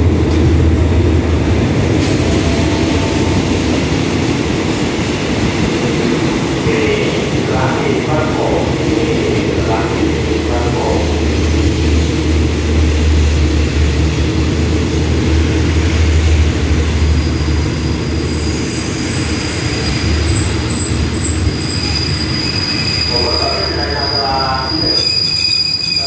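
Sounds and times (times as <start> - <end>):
train carriages rumbling past: 0.0 - 26.0
high braking squeal: 17.1 - 26.0.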